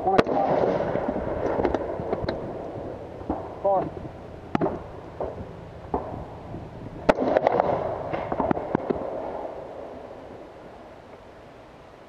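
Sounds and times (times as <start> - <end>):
rifle shot echoing: 0.0 - 10.3
faint sharp cracks: 7.1 - 9.5.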